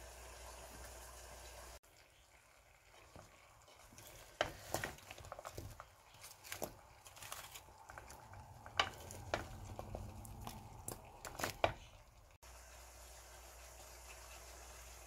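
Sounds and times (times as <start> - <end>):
spatula scraping in pan: 2.9 - 11.9.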